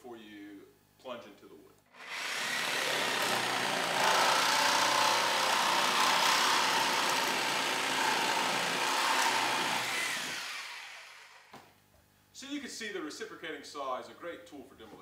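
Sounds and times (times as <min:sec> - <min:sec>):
reciprocating saw cutting wood: 0:02.0 - 0:11.5.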